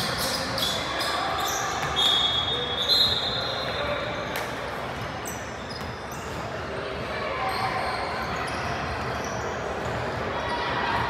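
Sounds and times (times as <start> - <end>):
voices in echoing gym: 0.0 - 11.0
high squeal: 0.1 - 4.2.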